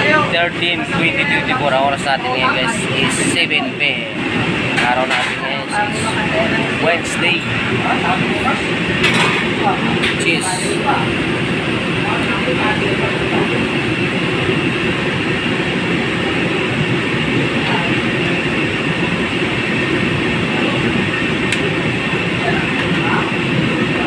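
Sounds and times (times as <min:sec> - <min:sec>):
loud steady rumbling: 0:00.0 - 0:24.0.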